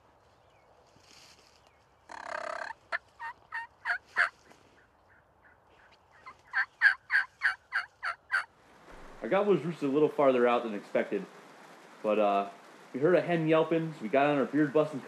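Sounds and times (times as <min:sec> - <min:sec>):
turkey yelping: 0:02.1 - 0:04.4, 0:05.1 - 0:08.5
turkey rattling burst: 0:06.5 - 0:15.0.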